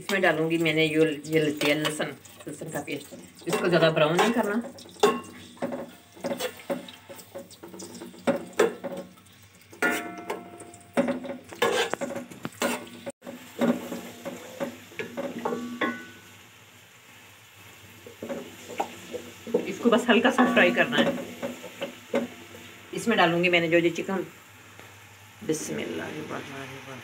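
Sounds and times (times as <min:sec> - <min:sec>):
light sizzle of frying oil: 0:00.0 - 0:27.0
spoon scraping metal pot: 0:11.0 - 0:14.7.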